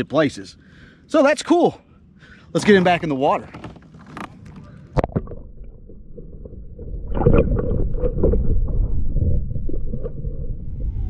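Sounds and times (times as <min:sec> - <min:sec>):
muffled underwater water sloshing: 0:02.6 - 0:11.0.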